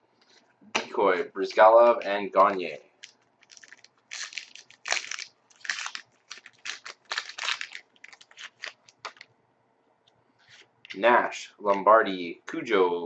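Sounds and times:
trading cards rustling: 2.4 - 9.3.

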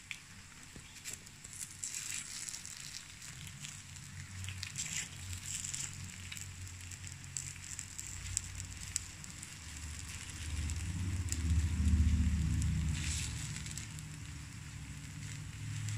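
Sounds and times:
batter sizzling on grill plate: 0.0 - 15.9
low rumble: 3.4 - 15.9.

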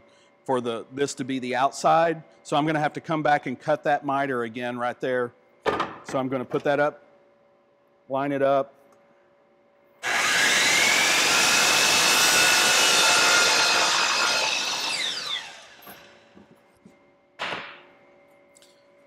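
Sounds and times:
miter saw cutting wood: 10.0 - 16.2.

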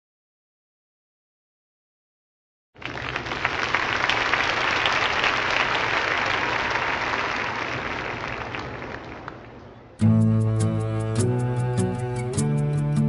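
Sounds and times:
crowd applauding: 2.8 - 9.7.

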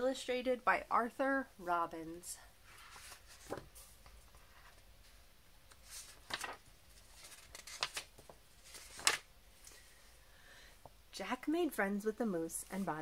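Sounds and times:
book pages turning: 2.7 - 9.3.

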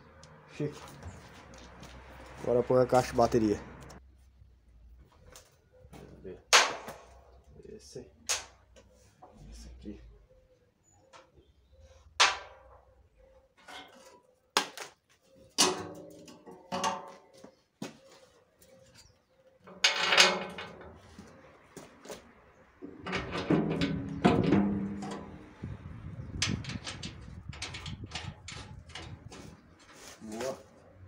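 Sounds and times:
metal box clanking and knocking: 15.6 - 17.1, 19.7 - 21.0, 22.8 - 25.6, 26.3 - 29.5
metal clatter: 19.7 - 21.1, 22.8 - 29.8.

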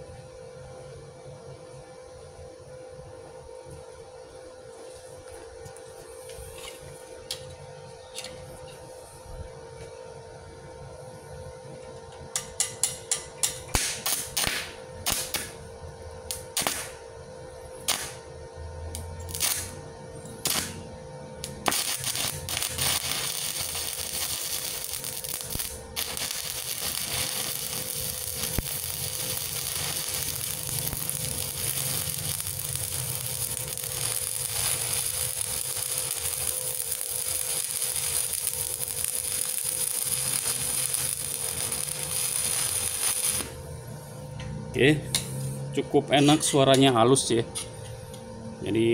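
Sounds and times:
welding arc crackling: 12.4 - 15.7, 16.3 - 17.0, 17.8 - 18.3, 19.0 - 43.7.

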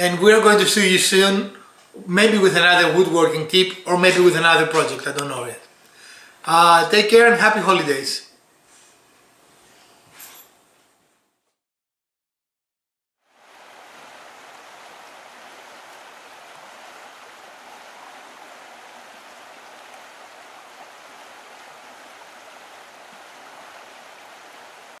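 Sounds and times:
rushing water: 13.2 - 25.0.

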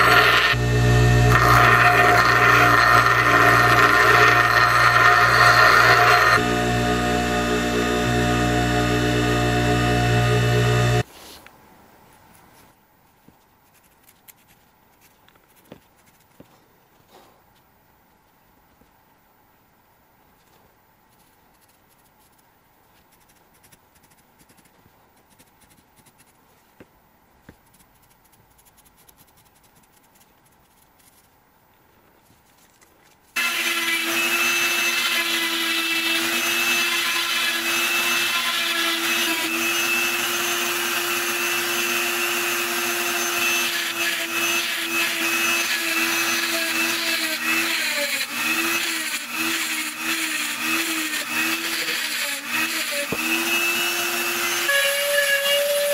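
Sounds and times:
rotary tool grinding rock: 0.0 - 6.4
marker scratching on stone: 21.1 - 26.4, 27.5 - 31.4.

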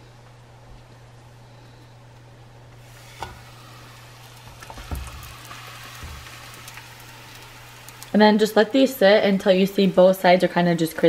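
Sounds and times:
oil sizzling in frying pan: 2.8 - 11.0.

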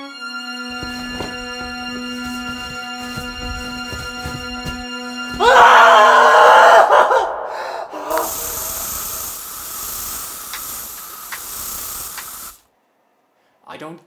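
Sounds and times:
man screaming: 5.4 - 8.2
spray hissing: 8.0 - 12.7.

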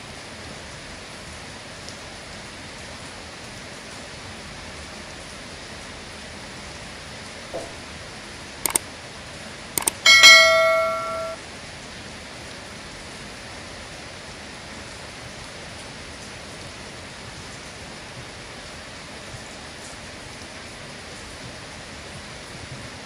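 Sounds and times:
ringing metallic clang: 9.8 - 11.4
sharp clicks: 9.8 - 11.4.

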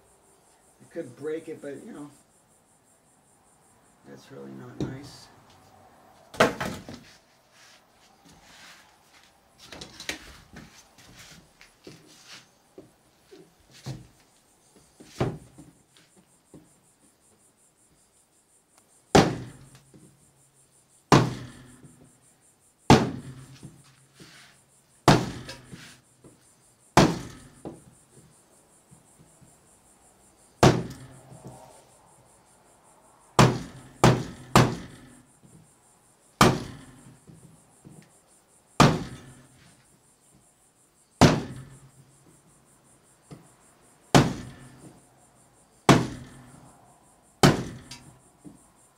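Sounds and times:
hammer nailing wooden floor: 25.1 - 26.0, 27.0 - 27.8, 30.6 - 31.1, 33.4 - 35.0, 36.4 - 37.0, 38.8 - 39.4, 44.2 - 44.7, 45.9 - 46.4, 47.4 - 48.0.

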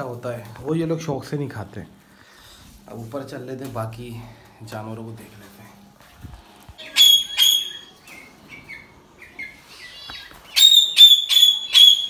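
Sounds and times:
birds chirping softly: 6.7 - 12.0
parrots screeching: 6.8 - 12.0.

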